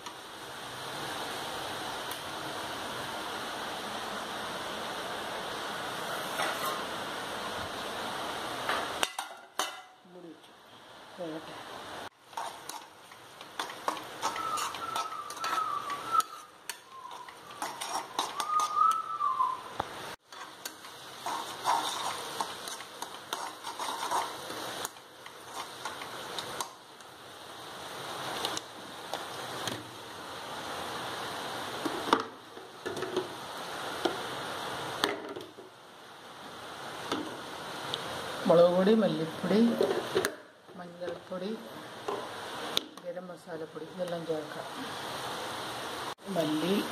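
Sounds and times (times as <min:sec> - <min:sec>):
vegetables sizzling in a pan: 0:00.0 - 0:46.9
spatula stirring and scraping: 0:12.2 - 0:19.1, 0:20.2 - 0:26.8.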